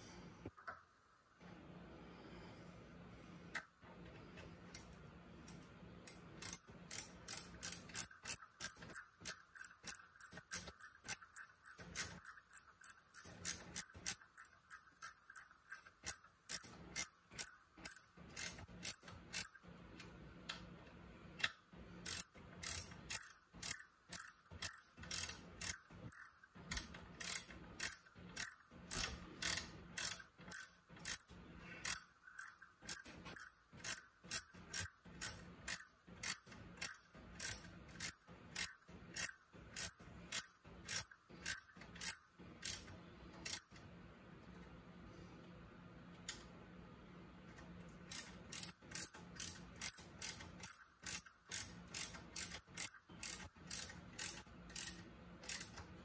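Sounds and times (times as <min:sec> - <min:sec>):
ratchet wrench clicking: 0:05.5 - 0:19.6, 0:21.4 - 0:43.8, 0:48.1 - 0:55.9.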